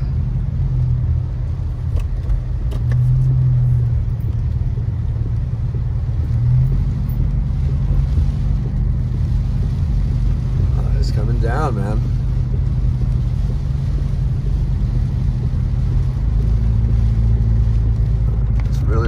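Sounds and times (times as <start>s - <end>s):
car engine and tyres droning: 0.0s - 19.0s
rain hissing on car: 0.0s - 19.0s.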